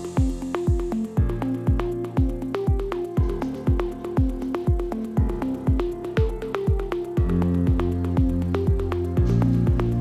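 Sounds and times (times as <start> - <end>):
kick drum: 0.0 - 10.0.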